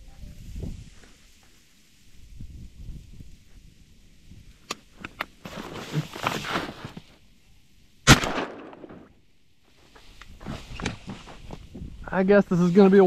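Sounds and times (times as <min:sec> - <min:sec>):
shuffling: 0:05.4 - 0:07.2, 0:09.8 - 0:13.0
loud shotgun blast: 0:08.0 - 0:09.1.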